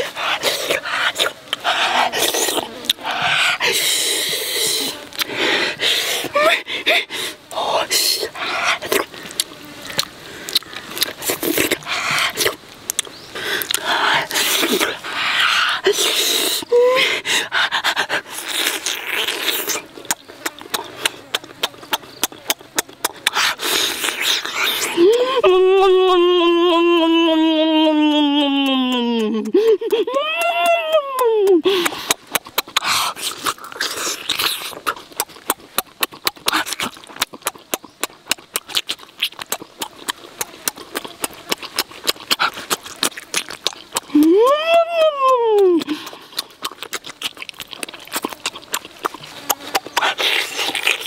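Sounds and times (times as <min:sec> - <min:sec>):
breathing noise: 0:00.0 - 0:09.4, 0:11.8 - 0:12.4, 0:13.3 - 0:18.5, 0:31.6 - 0:32.2
hissing slurp: 0:00.0 - 0:25.3, 0:31.6 - 0:44.4, 0:45.4 - 0:51.0
man chewing noisily: 0:00.0 - 0:51.0
wet smacking clicks: 0:08.8 - 0:15.0, 0:18.1 - 0:25.3, 0:27.8 - 0:51.0.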